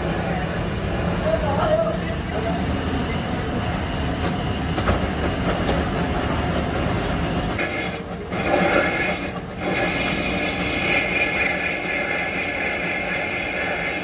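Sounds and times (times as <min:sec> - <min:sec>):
workshop machinery running: 0:00.0 - 0:14.0.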